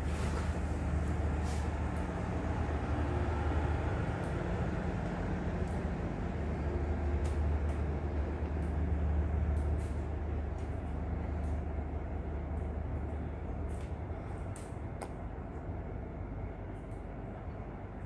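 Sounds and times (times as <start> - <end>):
passenger train rolling past: 0.0 - 13.5.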